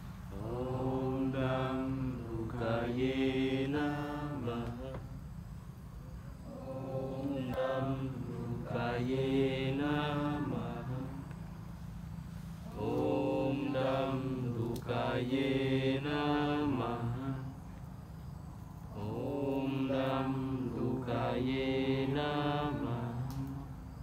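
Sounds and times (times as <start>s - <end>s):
steady low drone: 0.0s - 17.8s
person chanting: 0.3s - 5.2s, 6.4s - 11.3s, 12.6s - 17.6s, 18.9s - 23.8s.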